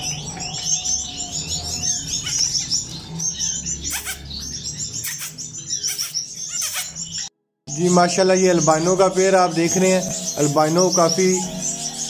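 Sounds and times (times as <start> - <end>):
finches chirping: 0.0 - 12.0.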